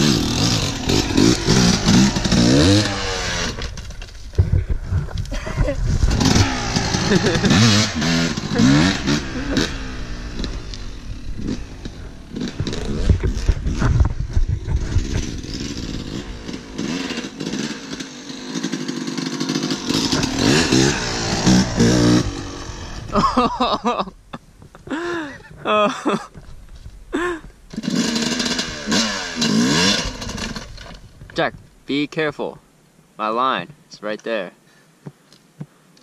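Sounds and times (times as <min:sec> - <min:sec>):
dirt bike engine revving: 0:00.0 - 0:03.9, 0:05.4 - 0:23.8, 0:27.7 - 0:30.8
knocks and clatter over rough ground: 0:00.0 - 0:08.9, 0:10.2 - 0:23.7, 0:24.3 - 0:31.7.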